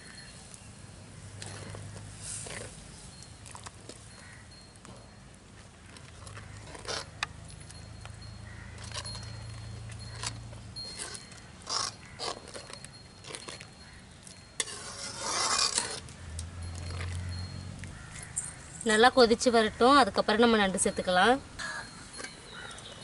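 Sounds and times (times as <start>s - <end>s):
metal ladle scraping a pot: 6.2s - 7.3s, 8.7s - 16.1s, 16.7s - 17.3s.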